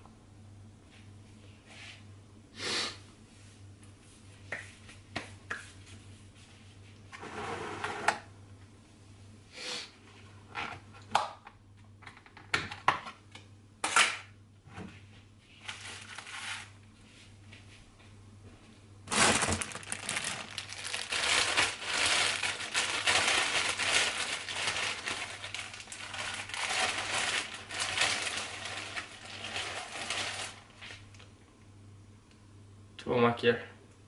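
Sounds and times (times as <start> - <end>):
low steady hum: 0.0 - 34.0
plastic bag rustling: 15.6 - 16.8, 19.0 - 31.2.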